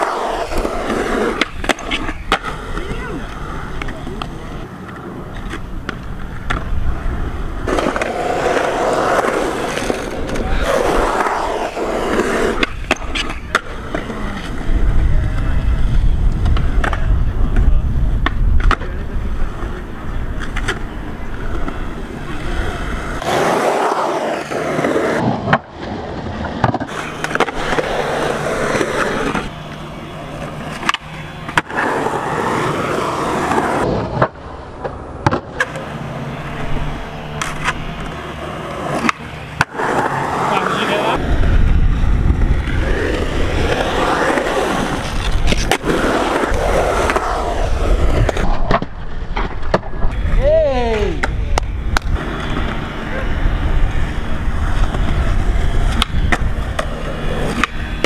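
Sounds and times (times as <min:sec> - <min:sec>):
skateboard wheels rolling on concrete: 0:00.0 - 0:58.0
skateboard tail pops clacking: 0:26.4 - 0:28.0, 0:33.8 - 0:36.0, 0:38.9 - 0:40.0, 0:48.2 - 0:50.2, 0:51.2 - 0:52.8, 0:55.9 - 0:58.0.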